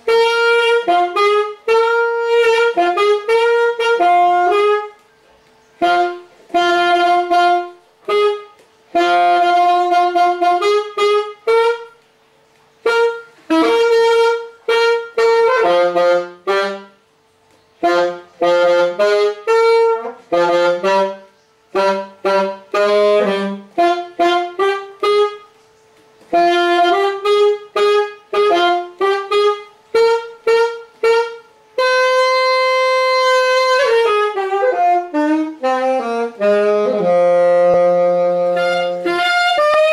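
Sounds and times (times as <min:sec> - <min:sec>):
alto saxophone solo: 0:00.0 - 0:39.9.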